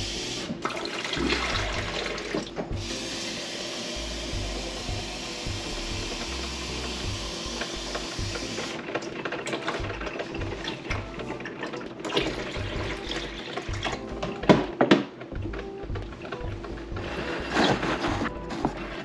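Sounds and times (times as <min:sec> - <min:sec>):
coffee maker hissing: 0:00.0 - 0:08.8.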